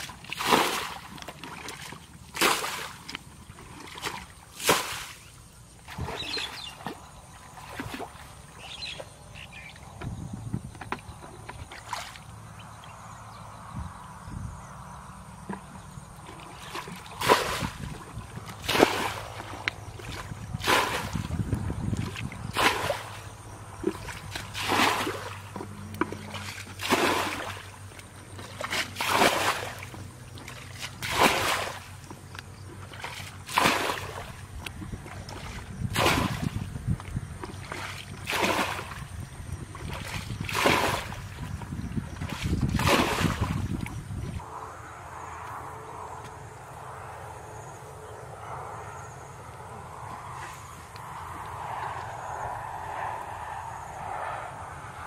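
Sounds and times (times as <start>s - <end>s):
water splashing from bucket: 0.0s - 5.3s, 15.5s - 44.0s.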